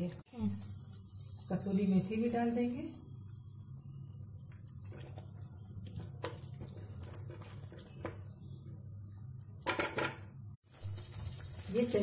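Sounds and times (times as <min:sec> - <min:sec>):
spoon stirring thick gravy: 0:04.1 - 0:08.6.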